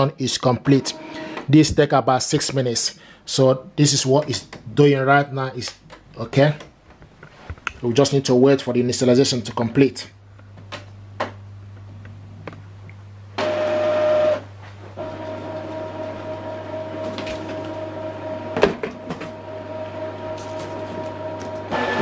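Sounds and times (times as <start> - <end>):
printer motor whirring: 0.6 - 1.5, 13.4 - 14.4, 15.0 - 22.0.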